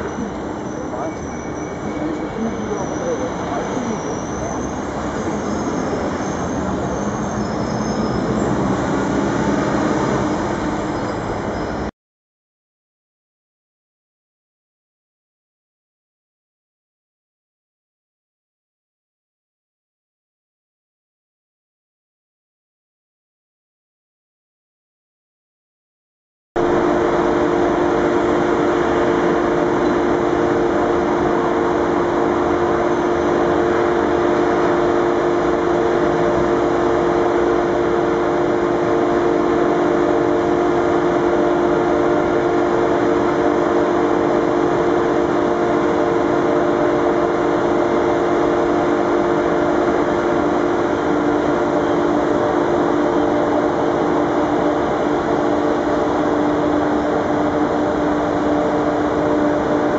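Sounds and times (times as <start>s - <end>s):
electric trains humming: 0.0s - 11.9s, 26.6s - 59.9s.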